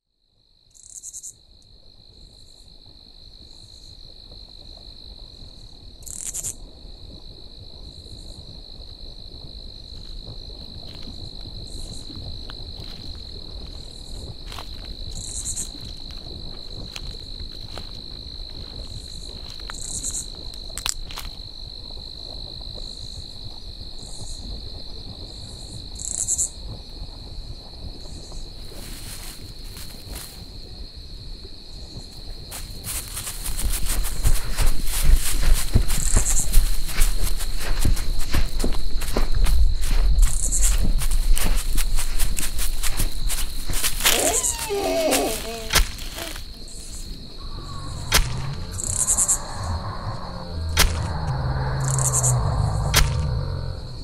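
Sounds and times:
insects trilling: 0.6s - 54.0s
insect chirping calls: 0.7s - 1.4s, 2.1s - 26.7s, 27.9s - 54.0s
low rumble: 47.2s - 54.0s.

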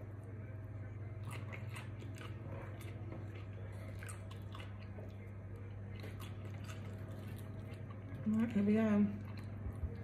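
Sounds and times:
person chewing with mouth smacks: 1.2s - 8.3s, 9.2s - 10.0s.

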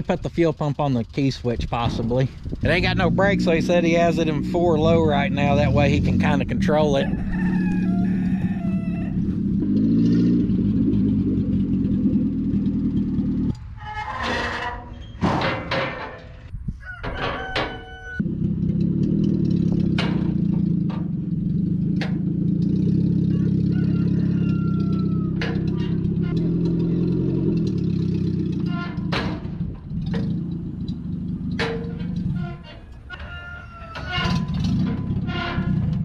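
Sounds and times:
truck engine running: 0.0s - 13.6s, 18.2s - 33.2s, 34.0s - 36.0s
knocks: 19.8s - 21.2s.

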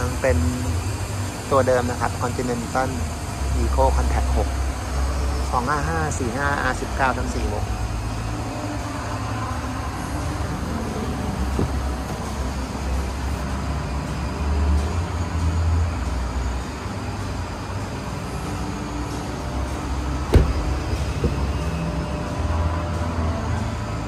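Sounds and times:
car door latch click: 11.6s - 11.8s, 20.3s - 21.5s.

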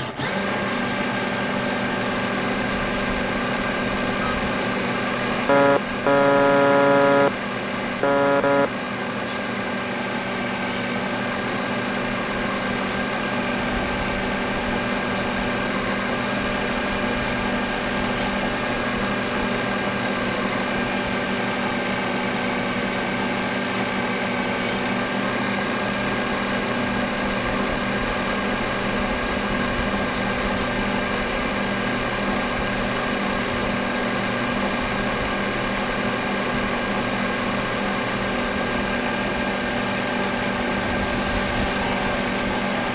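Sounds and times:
electric motor humming: 5.5s - 7.3s, 8.0s - 8.7s.

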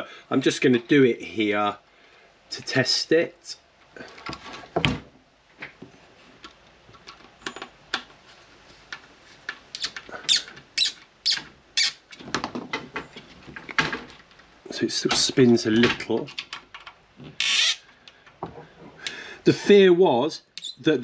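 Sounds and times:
screw squeaking into plastic: 9.7s - 12.1s, 17.2s - 17.9s, 20.6s - 20.8s.

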